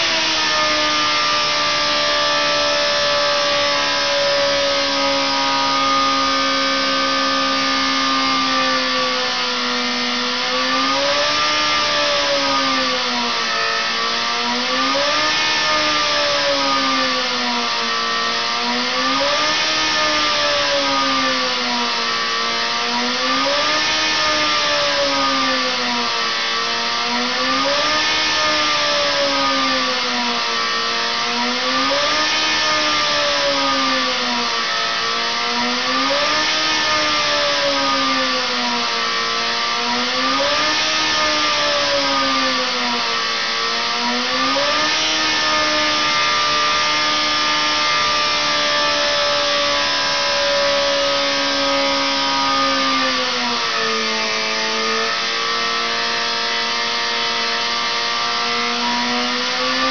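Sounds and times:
engine revving on test bed: 0:00.0 - 0:59.9.

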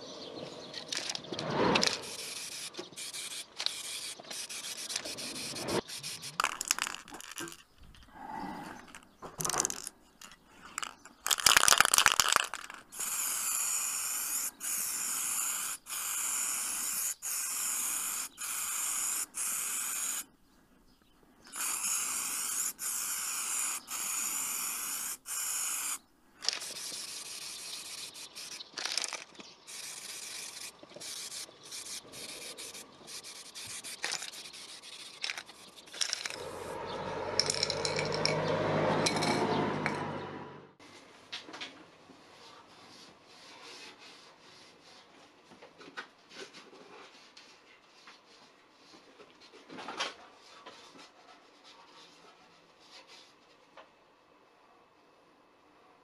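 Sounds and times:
hand rubbing and scraping: 0:00.9 - 0:40.1
spray paint can hissing: 0:01.8 - 0:07.6, 0:10.8 - 0:20.3, 0:21.5 - 0:36.8.

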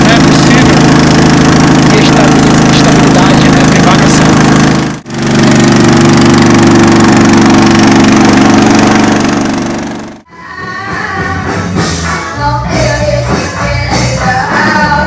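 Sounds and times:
boat motor running: 0:00.0 - 0:10.3
faint music with singing: 0:10.3 - 0:15.0.

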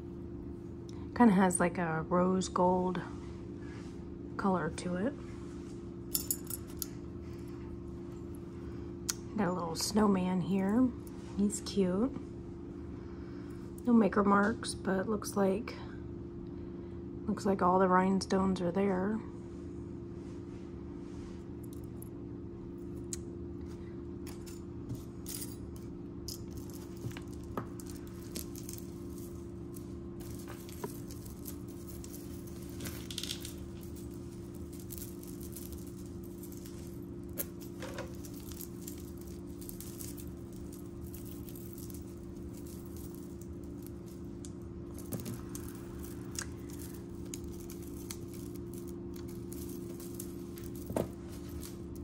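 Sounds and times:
steady low hum: 0:00.0 - 0:52.0
metal jewelry clinking: 0:06.1 - 0:08.4, 0:24.2 - 0:52.0.

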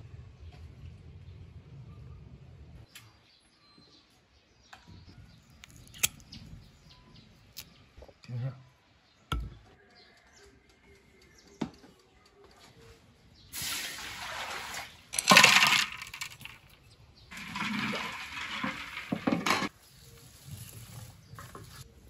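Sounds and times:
water splashing: 0:13.6 - 0:16.0, 0:17.3 - 0:19.7
rock sugar splashing into water: 0:13.6 - 0:16.7, 0:17.3 - 0:19.7.

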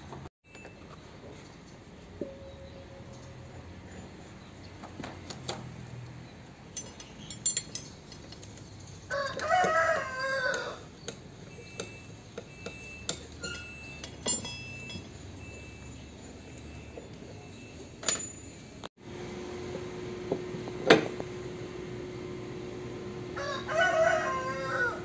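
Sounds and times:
metal parts clicking and clinking: 0:06.6 - 0:18.9
rooster crowing: 0:09.1 - 0:10.9, 0:23.3 - 0:25.0.

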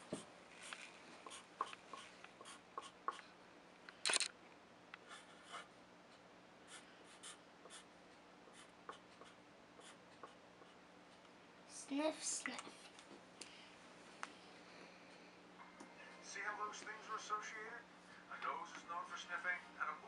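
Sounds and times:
marker scratching on paper: 0:00.0 - 0:03.2, 0:05.0 - 0:05.7, 0:06.7 - 0:07.9, 0:08.5 - 0:10.8.

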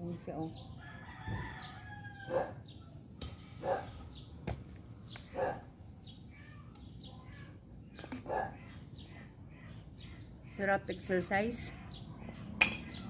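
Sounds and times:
dog barking: 0:02.3 - 0:02.6, 0:03.6 - 0:03.9, 0:05.3 - 0:05.6, 0:08.2 - 0:08.6.

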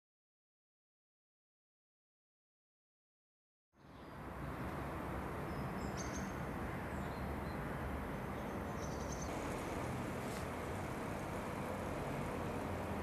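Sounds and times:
distant traffic rumble: 0:03.8 - 0:13.0
bird chirps: 0:05.5 - 0:06.4, 0:08.3 - 0:09.4.

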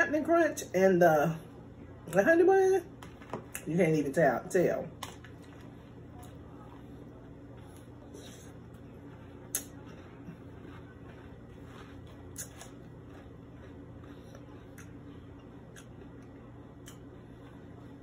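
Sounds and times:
steady low hum: 0:00.0 - 0:18.0
chewing crunchy cereal: 0:04.9 - 0:18.0.

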